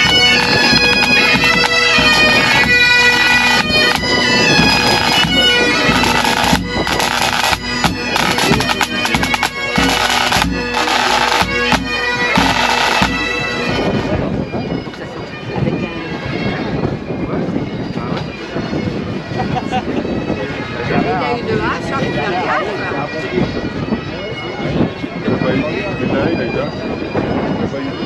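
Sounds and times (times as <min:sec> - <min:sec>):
drum beats: 0:00.0 - 0:13.8
bagpipes playing with drone: 0:00.0 - 0:28.0.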